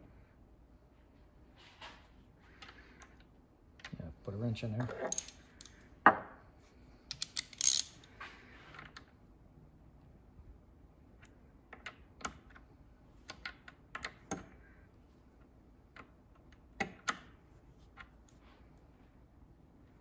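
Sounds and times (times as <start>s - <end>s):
ratchet wrench clicking: 7.1s - 8.0s.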